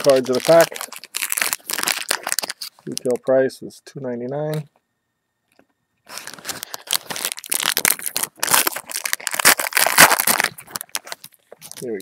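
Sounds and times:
wrapper crinkling and tearing: 0.0 - 3.2, 6.1 - 12.0.

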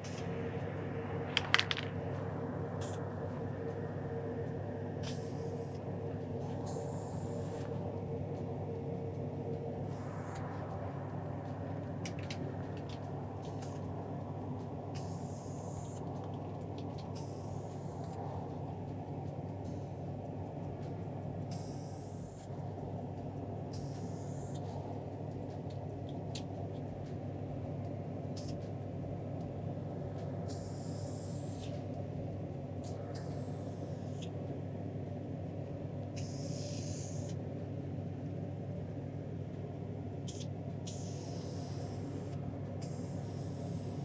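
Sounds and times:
ventilation hum: 0.0 - 44.0
spray paint can hissing: 36.2 - 37.3, 40.3 - 44.0.

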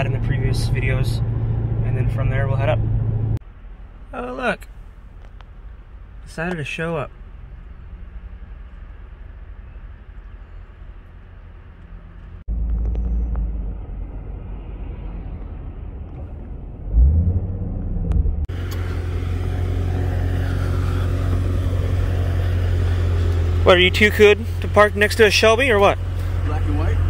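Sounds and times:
car engine and road rumble: 0.0 - 27.0
car engine idling: 16.2 - 27.0.

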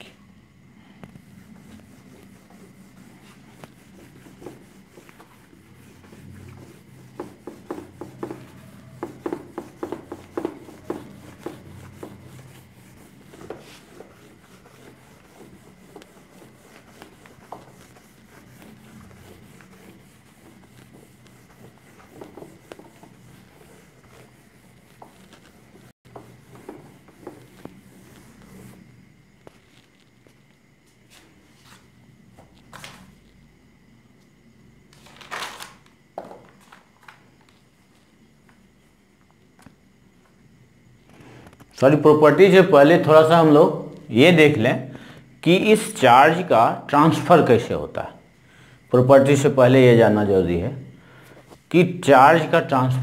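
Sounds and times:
eraser wiping whiteboard: 0.8 - 31.9.

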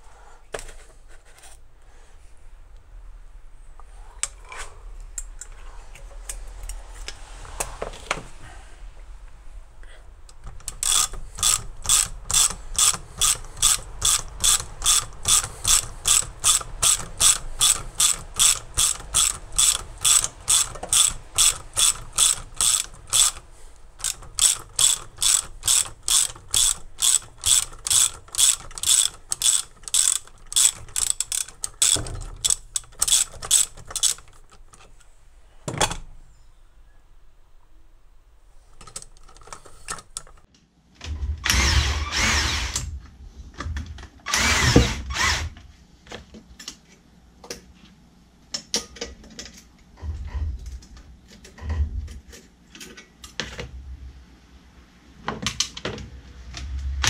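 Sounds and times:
hand ratchet clicking: 10.3 - 34.9, 38.7 - 40.5.

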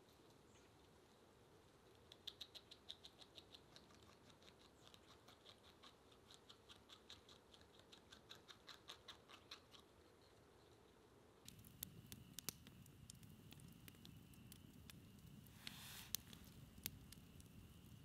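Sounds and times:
beaver chewing clicks: 1.9 - 10.1, 11.5 - 15.3.

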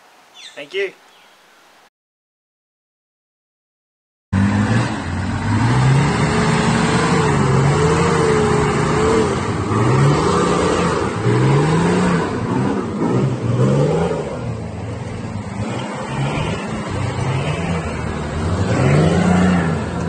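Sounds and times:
truck engine revving: 4.4 - 20.0.

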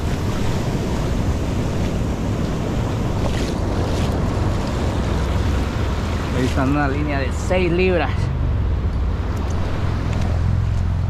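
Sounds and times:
wind on microphone: 0.0 - 7.3
surf washing in: 0.0 - 11.0.

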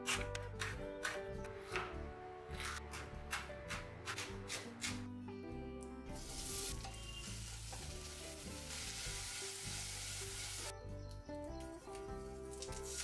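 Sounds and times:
soft background music: 0.0 - 13.0
food sizzling in oil: 6.1 - 10.7, 12.5 - 13.0.

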